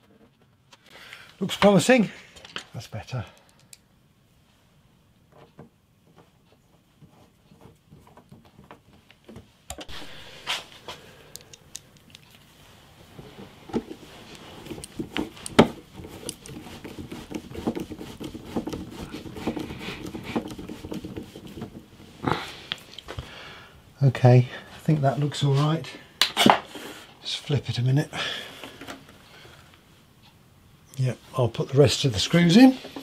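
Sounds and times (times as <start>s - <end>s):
screwdriver clicking and rattling: 11.3s - 12.5s, 14.3s - 21.6s.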